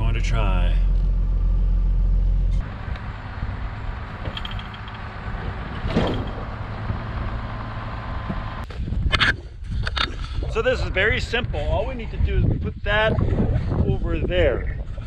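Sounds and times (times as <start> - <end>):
tractor engine idling outdoors: 0.0 - 8.6
truck engine idling inside cab: 0.0 - 8.6.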